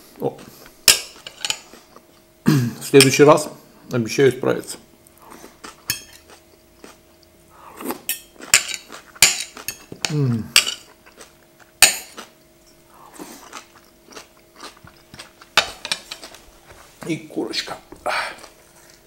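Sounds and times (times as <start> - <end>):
person chewing: 0.4 - 2.3, 5.0 - 16.8, 17.9 - 19.0
person humming mm: 10.0 - 10.6.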